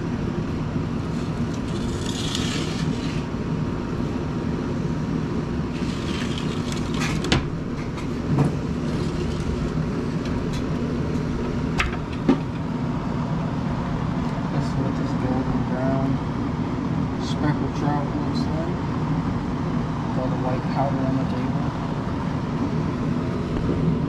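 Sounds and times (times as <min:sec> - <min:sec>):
steady low rumble: 0:00.0 - 0:24.0.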